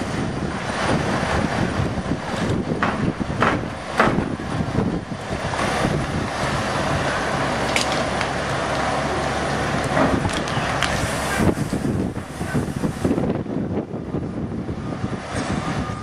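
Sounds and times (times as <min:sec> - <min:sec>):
diesel truck engine running: 0:00.0 - 0:16.0
sharp knocks: 0:02.8 - 0:04.4.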